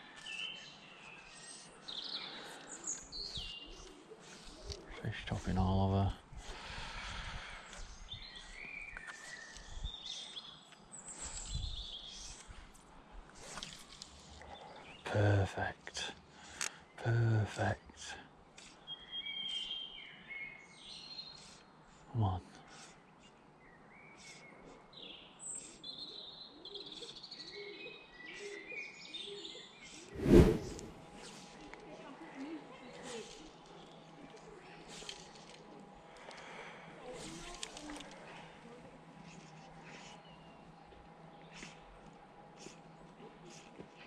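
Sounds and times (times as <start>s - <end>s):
songbirds chirping and trilling: 0.0s - 17.0s, 17.7s - 30.9s, 37.6s - 44.0s
songbirds whistling: 6.7s - 12.5s, 18.6s - 21.7s.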